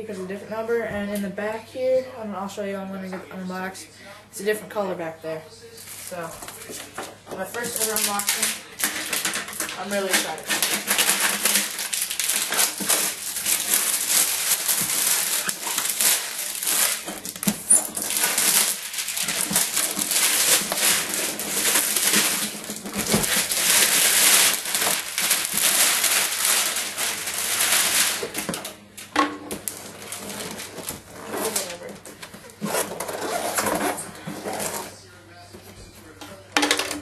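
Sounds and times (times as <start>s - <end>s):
plastic shrink-wrap crinkling and tearing: 5.8s - 35.1s
cardboard rustling and scraping: 5.8s - 36.2s.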